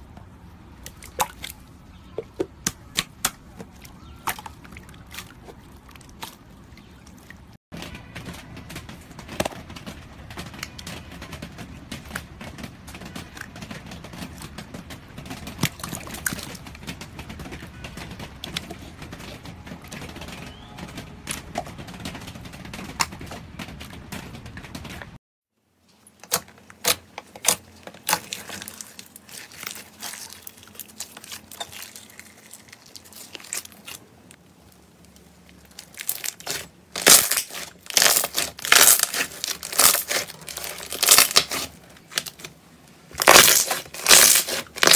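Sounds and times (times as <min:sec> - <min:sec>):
slime crackling and popping: 0:26.2 - 0:42.5, 0:43.1 - 0:44.9.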